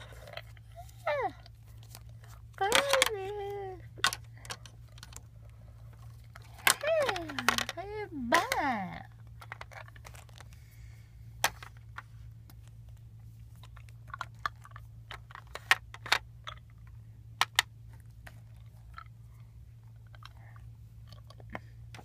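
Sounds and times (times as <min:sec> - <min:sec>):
steady low hum: 0:00.0 - 0:22.0
plastic toy pieces clicking: 0:02.7 - 0:03.3, 0:06.4 - 0:08.6.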